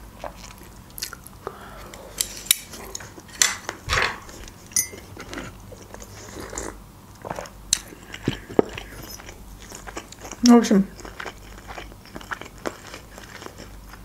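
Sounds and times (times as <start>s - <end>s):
chewing and mouth clicks: 0.2s - 1.3s, 4.9s - 14.0s
chopsticks clinking on dishes: 3.3s - 5.4s
porcelain cup clinking: 4.8s - 5.1s.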